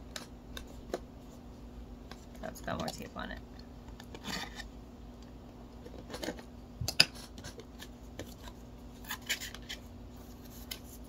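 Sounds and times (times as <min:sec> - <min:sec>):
tape scratching and clicking: 0:05.8 - 0:11.0.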